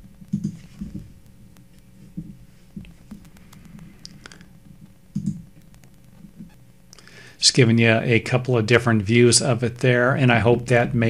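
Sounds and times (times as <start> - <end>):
computer mouse clicks: 0.3 - 4.5, 5.1 - 6.6.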